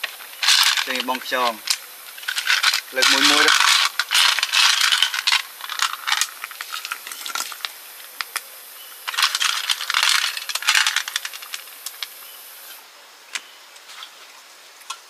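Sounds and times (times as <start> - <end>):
snail shells clinking into a pot: 0.4 - 8.4, 9.1 - 12.1.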